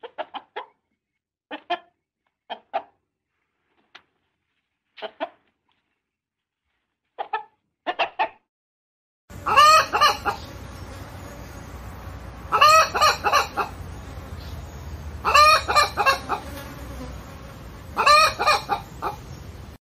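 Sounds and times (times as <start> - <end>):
hen clucking: 0.0 - 0.8, 1.5 - 3.0, 5.0 - 5.5, 7.2 - 8.4, 9.3 - 11.0, 12.4 - 16.6, 17.9 - 19.4
hen cackling: 7.2 - 8.4, 9.3 - 10.6, 12.4 - 14.0, 15.2 - 16.6, 17.9 - 19.4.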